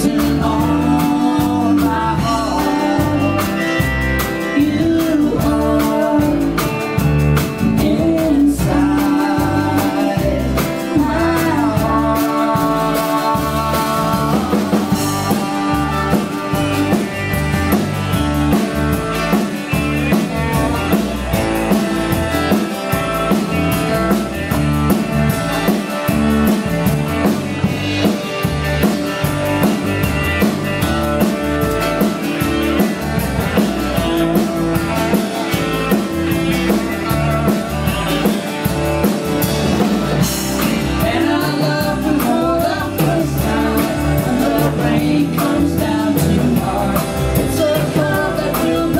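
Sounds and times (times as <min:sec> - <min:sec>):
person singing: 0:00.0 - 0:18.7, 0:39.8 - 0:48.9
blues-rock band playing: 0:00.0 - 0:48.9.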